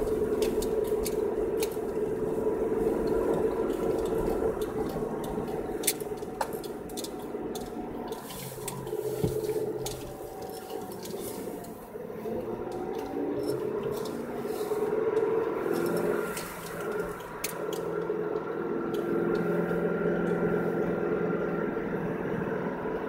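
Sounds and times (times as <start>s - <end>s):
sharp clicks and crackles: 0.0s - 20.6s
car cabin hum: 0.0s - 23.0s
tyres hissing through snow: 13.7s - 17.1s.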